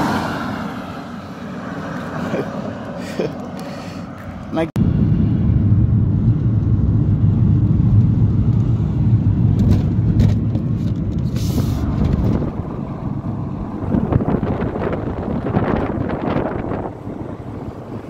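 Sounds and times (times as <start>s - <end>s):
vehicle engine and road noise: 0.0s - 18.0s
brief hiss: 11.3s - 11.9s.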